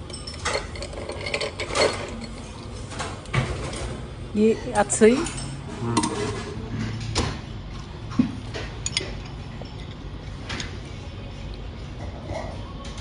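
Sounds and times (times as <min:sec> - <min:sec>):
utensils clinking on ceramic dishes: 0:00.0 - 0:07.1, 0:08.5 - 0:10.8.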